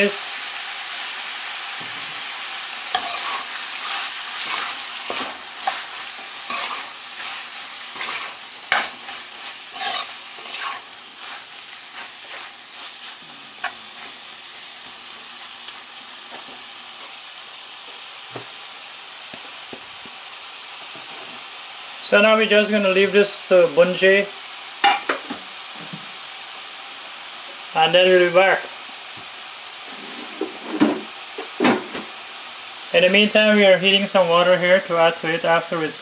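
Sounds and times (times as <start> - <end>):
shrimp sizzling in paste: 0.0 - 34.0
metal spoon scraping metal pot: 8.0 - 9.0, 9.7 - 10.8.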